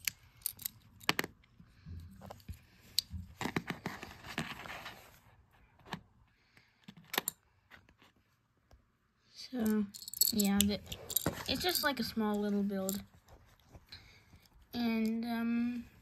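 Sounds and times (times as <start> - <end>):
plastic pieces clicking: 0.0 - 1.5, 9.6 - 11.9.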